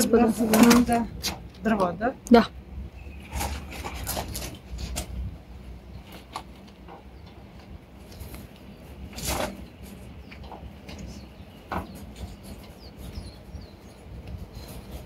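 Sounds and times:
steady low rumble: 0:00.0 - 0:15.0
firewood knocks and scrapes: 0:03.2 - 0:05.3, 0:08.1 - 0:13.2.

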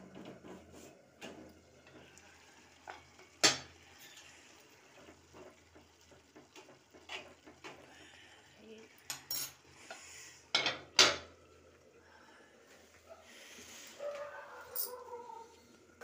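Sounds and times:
spoon stirring noodles in pan: 0:00.1 - 0:08.0.

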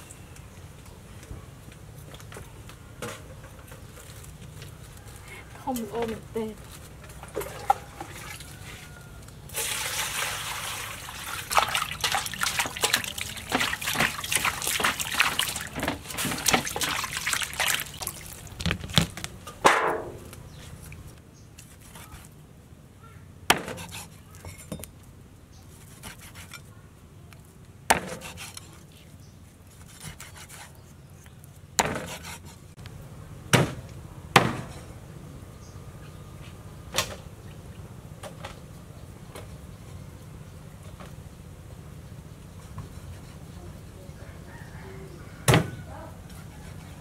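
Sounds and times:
water splashing and pouring: 0:09.5 - 0:19.2.

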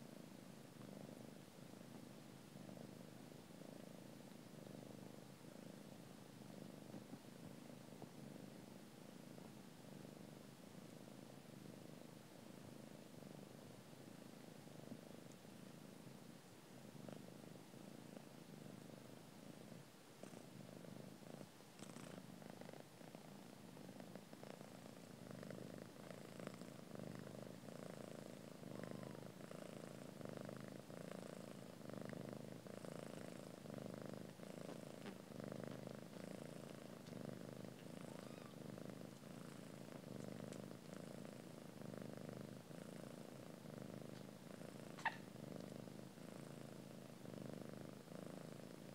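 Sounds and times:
cat purring: 0:00.0 - 0:48.9
faint clicks: 0:15.3 - 0:15.5.

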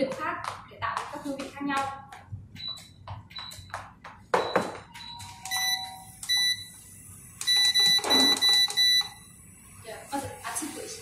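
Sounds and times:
cooktop control panel beeping: 0:04.4 - 0:09.3.

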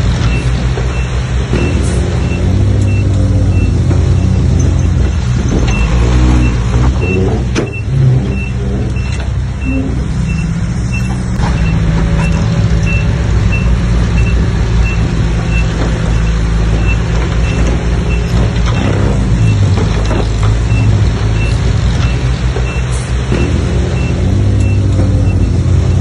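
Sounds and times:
bulldozer diesel engine: 0:00.0 - 0:26.0
reversing alarm beeping: 0:00.3 - 0:04.9, 0:05.7 - 0:18.4, 0:20.7 - 0:26.0.

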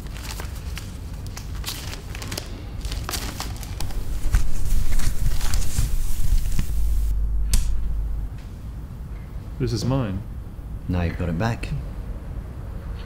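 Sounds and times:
newspaper pages rustling: 0:00.0 - 0:07.1
heavy low rumble: 0:03.8 - 0:10.8.

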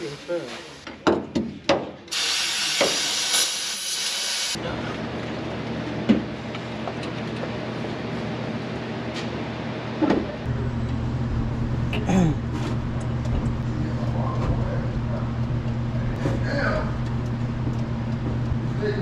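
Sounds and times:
engine low mechanical drone: 0:04.5 - 0:19.0.

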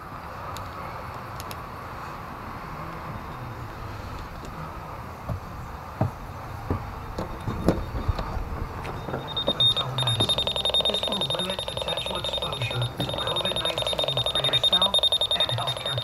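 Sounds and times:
pulsing electronic alarm tone: 0:07.0 - 0:16.0.

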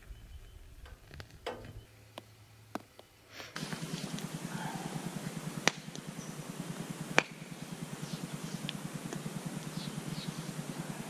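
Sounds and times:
faint bird chirps: 0:00.0 - 0:02.1, 0:07.3 - 0:11.0
campfire crackling and popping: 0:00.0 - 0:04.6, 0:05.2 - 0:10.4
low pulsing hum: 0:00.0 - 0:11.0.

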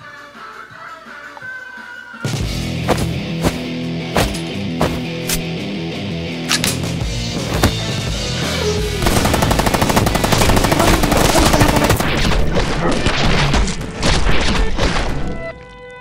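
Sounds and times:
rapid automatic gunfire: 0:09.0 - 0:12.7.

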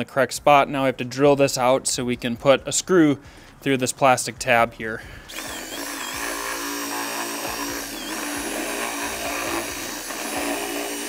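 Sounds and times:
cordless drill boring plastic: 0:05.3 - 0:11.0.

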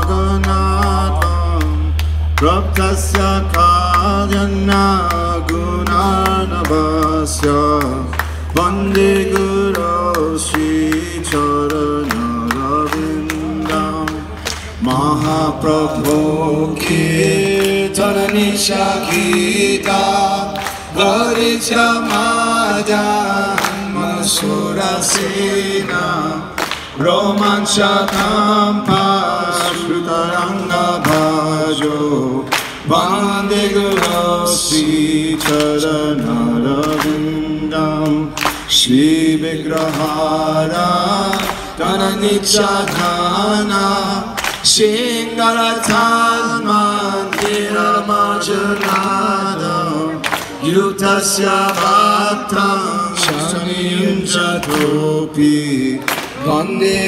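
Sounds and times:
bass guitar: 0:00.0 - 0:18.4
man singing: 0:00.0 - 0:57.0.

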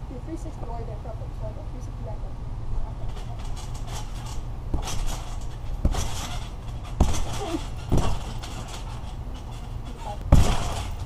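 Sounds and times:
steady low rumble: 0:00.0 - 0:11.0
feet thumping on trampoline: 0:03.1 - 0:11.0.

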